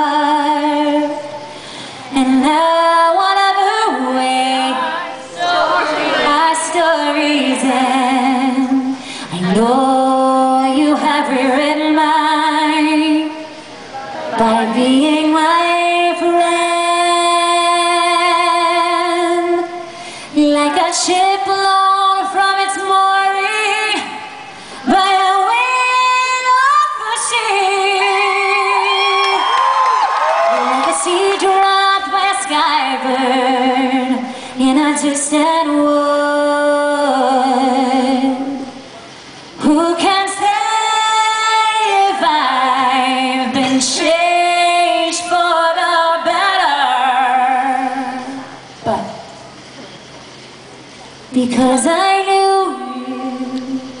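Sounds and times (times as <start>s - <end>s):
woman singing a cappella: 0.0s - 5.5s, 6.1s - 13.7s, 14.3s - 29.6s, 30.6s - 38.8s, 39.6s - 49.3s, 51.3s - 54.0s
singer breathing: 1.3s - 2.1s, 9.0s - 9.4s, 19.8s - 20.4s, 24.5s - 24.9s, 34.2s - 34.6s.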